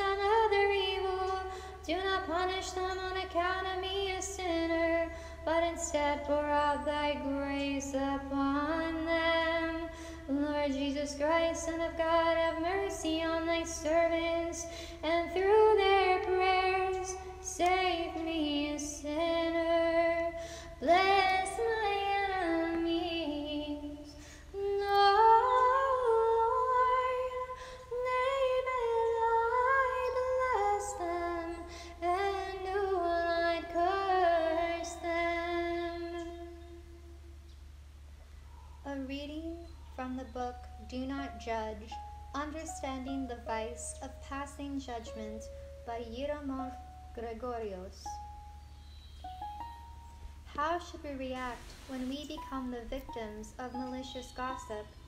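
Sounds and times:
woman singing a hymn: 0:00.0 - 0:37.2, 0:38.8 - 0:48.3, 0:50.4 - 0:55.0.

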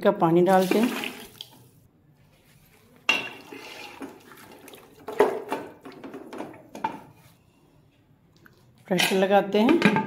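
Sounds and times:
spoon stirring wet food: 0:03.0 - 0:07.0.

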